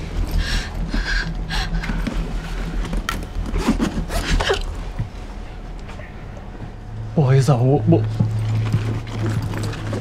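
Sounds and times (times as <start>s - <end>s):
bus interior hum: 0.0s - 10.0s
passenger scraping and rustling: 1.8s - 6.7s, 8.0s - 10.0s.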